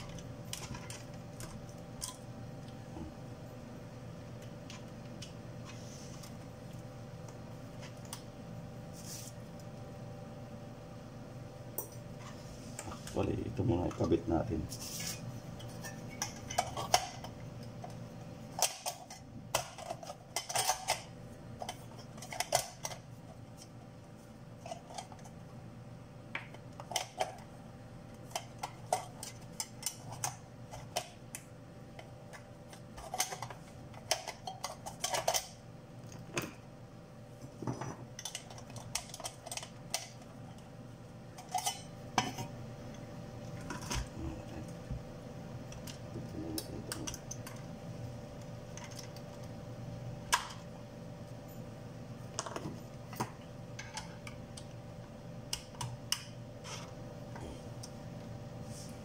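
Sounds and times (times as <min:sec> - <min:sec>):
faint steady hum: 0:00.0 - 0:59.0.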